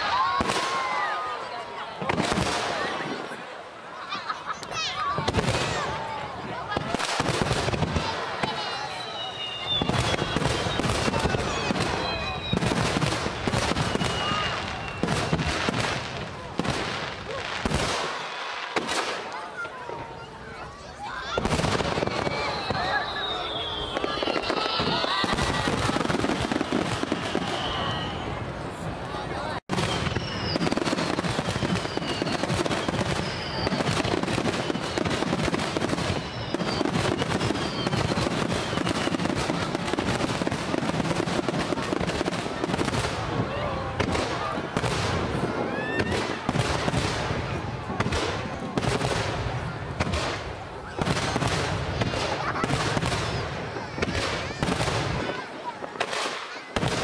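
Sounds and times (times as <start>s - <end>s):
fireworks bursting: 0.0s - 57.0s
firework whistles falling: 8.4s - 16.0s, 21.3s - 28.4s, 29.7s - 41.8s.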